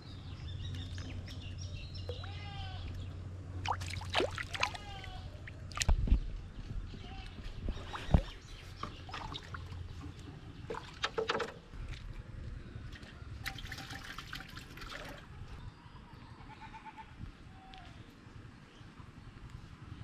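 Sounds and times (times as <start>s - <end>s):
fish thrashing and splashing in water: 3.6s - 6.0s, 13.4s - 15.2s.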